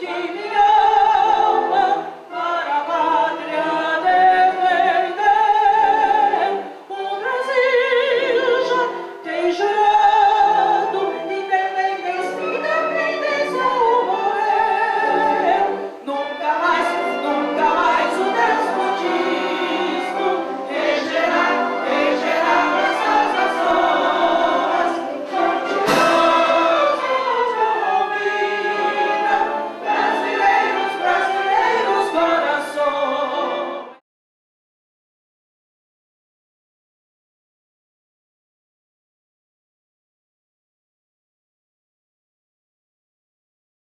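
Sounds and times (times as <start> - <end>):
choir-like singing music: 0.0 - 34.0.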